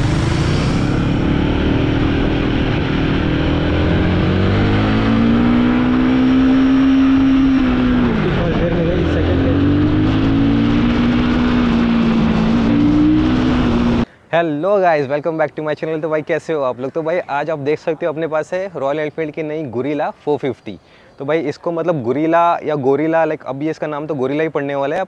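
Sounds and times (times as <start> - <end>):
motorcycle engine revving: 0.0 - 14.1.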